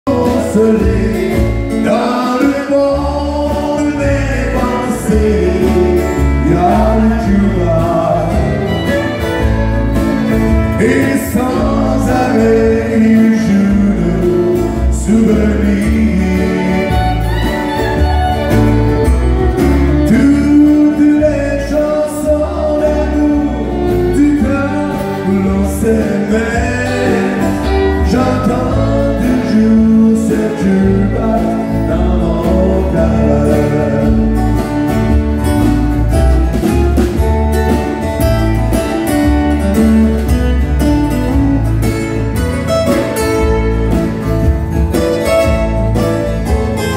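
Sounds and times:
man singing: 0.0 - 18.0, 19.6 - 35.2
strummed acoustic guitars: 0.0 - 46.9
fiddle playing: 2.8 - 46.9.

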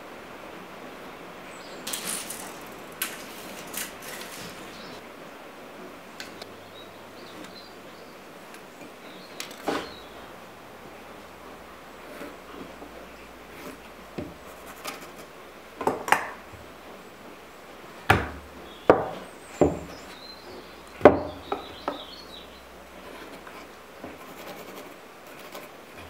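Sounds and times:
tools knocking on wooden workbench: 14.2 - 14.4, 18.1 - 20.0, 21.0 - 22.0.

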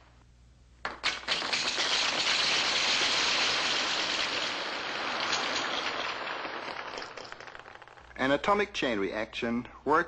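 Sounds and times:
ping-pong balls bouncing: 0.8 - 1.8.

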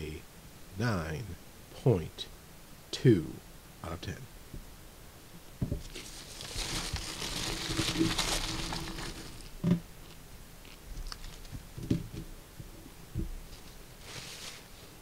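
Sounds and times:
food wrapper crinkling: 5.8 - 11.6.

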